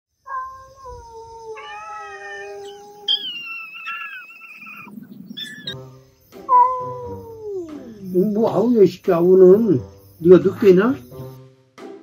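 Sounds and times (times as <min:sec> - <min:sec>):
cats yowling: 0:00.3 - 0:05.8, 0:06.5 - 0:08.4.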